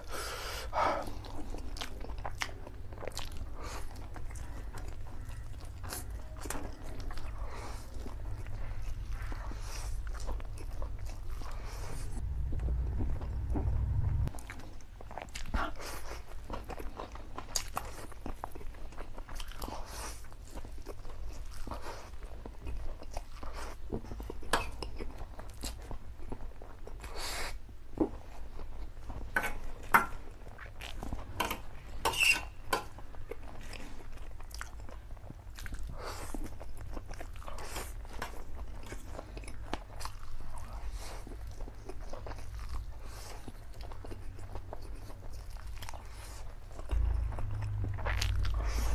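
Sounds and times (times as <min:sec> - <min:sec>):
man slurping and chewing noodles: 0:30.5 - 0:48.9.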